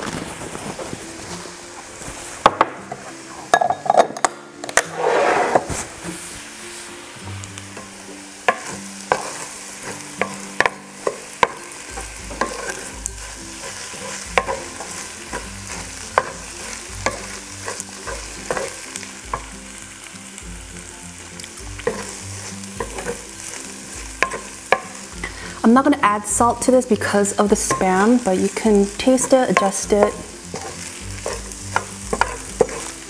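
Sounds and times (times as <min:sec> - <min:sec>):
rice sizzling in pan: 0:00.0 - 0:33.0.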